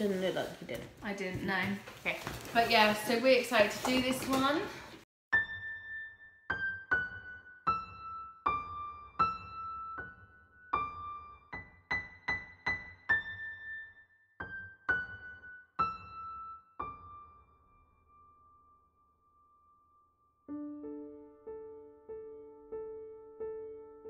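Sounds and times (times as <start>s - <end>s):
slow piano-like keyboard melody: 5.3s - 24.0s.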